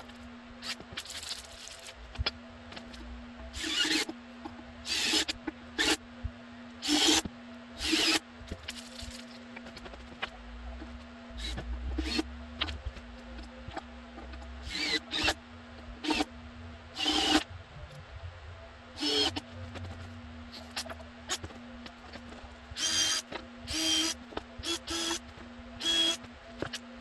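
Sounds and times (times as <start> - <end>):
cordless drill whining: 19.0 - 19.4, 22.8 - 25.2, 25.8 - 26.2.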